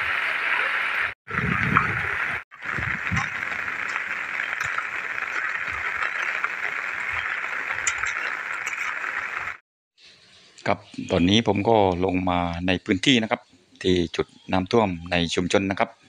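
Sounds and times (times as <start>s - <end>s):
heavy rain hissing: 0.0s - 9.6s
running floodwater: 0.0s - 9.6s
low rumbles: 1.3s - 9.6s.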